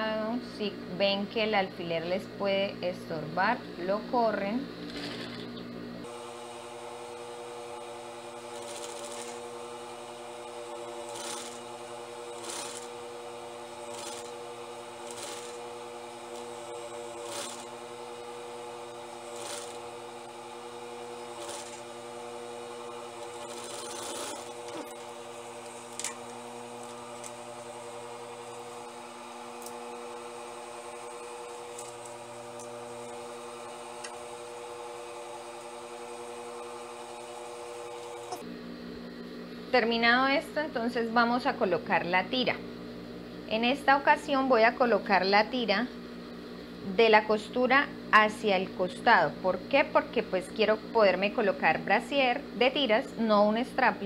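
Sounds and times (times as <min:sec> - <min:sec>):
sewing machine motor humming: 0:04.8 - 0:38.5.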